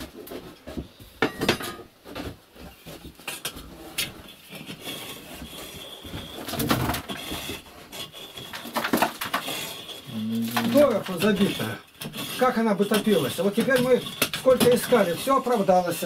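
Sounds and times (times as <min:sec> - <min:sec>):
metal poker scraping and clanking: 0:03.2 - 0:16.0.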